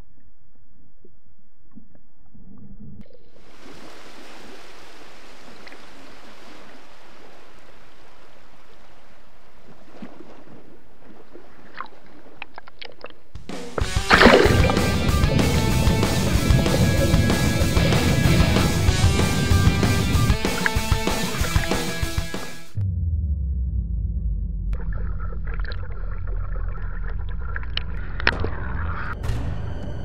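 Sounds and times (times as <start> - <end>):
water splashes: 1.7 - 22.8
sea waves washing: 3.4 - 12.3, 13.8 - 22.8.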